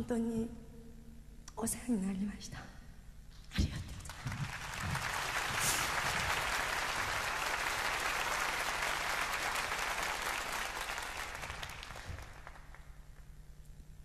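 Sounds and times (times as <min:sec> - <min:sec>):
audience applauding: 0:04.0 - 0:13.2.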